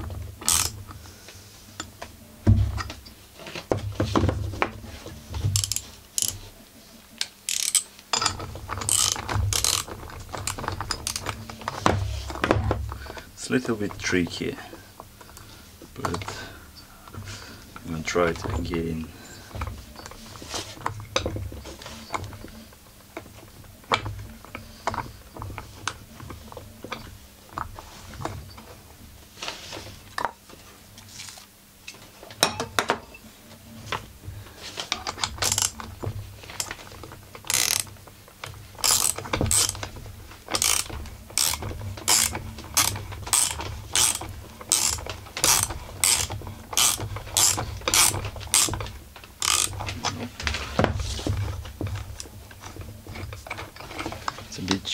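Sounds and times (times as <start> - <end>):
ratchet wrench clicking: 0.5 - 0.7, 5.6 - 6.4, 7.2 - 8.3, 8.9 - 11.2, 37.5 - 37.9, 38.8 - 39.8, 40.5 - 48.8, 49.4 - 49.7.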